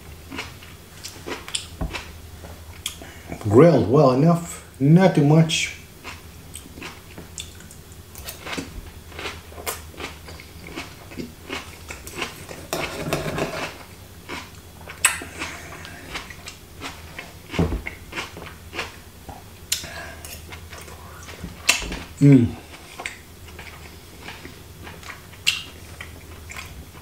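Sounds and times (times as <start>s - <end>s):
person chewing: 0.1s - 3.4s, 6.0s - 27.0s
dull thump: 17.6s - 17.9s.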